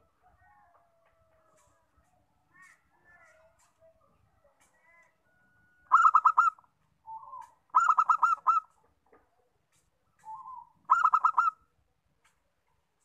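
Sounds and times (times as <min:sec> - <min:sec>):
dove cooing: 0:05.9 - 0:08.8, 0:10.2 - 0:11.6.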